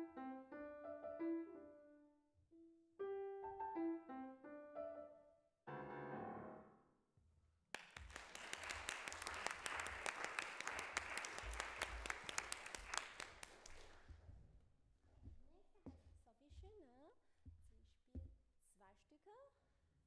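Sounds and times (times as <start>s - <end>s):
audience applause: 7.8s - 14.0s.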